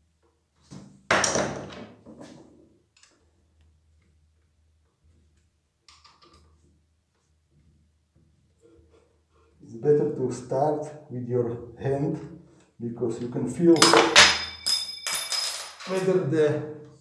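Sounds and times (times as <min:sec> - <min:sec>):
metal parts clinking: 0:13.8 - 0:16.2
tools clattering on wooden worktop: 0:13.8 - 0:16.2.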